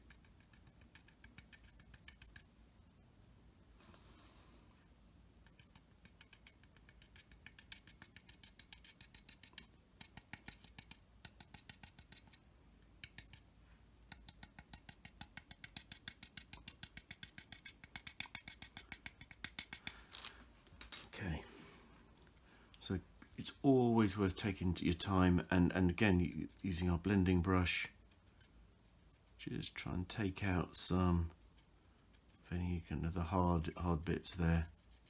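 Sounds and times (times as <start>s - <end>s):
paintbrush scratchy taps: 5.4s - 12.4s, 14.1s - 19.9s.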